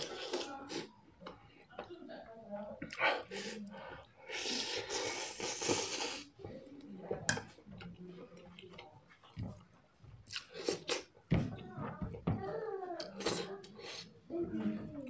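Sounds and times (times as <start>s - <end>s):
chewing: 3.9s - 11.2s
person slurping noodles: 4.3s - 6.3s
mouth clicks and smacks: 8.6s - 11.1s.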